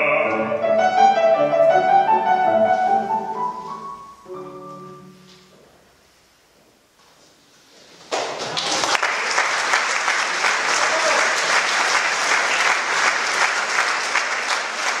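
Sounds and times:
audience applauding: 8.0 - 15.0.

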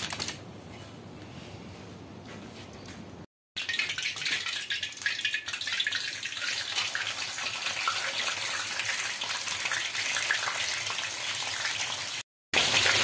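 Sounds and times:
hot oil sizzling and popping: 3.6 - 13.0.

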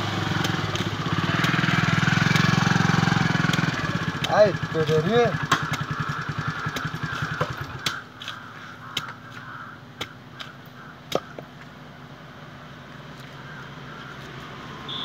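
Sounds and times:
knife chopping fruit husk: 0.2 - 6.0, 6.6 - 11.5.

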